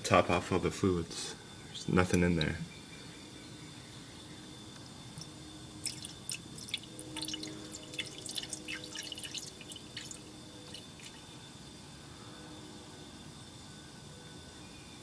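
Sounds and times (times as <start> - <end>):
liquid pouring and gurgling: 5.8 - 11.2.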